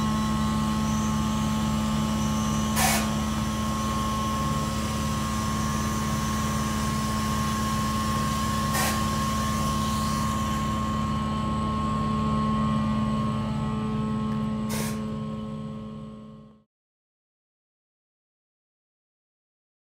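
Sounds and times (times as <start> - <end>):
brief hiss: 14.7 - 15.0.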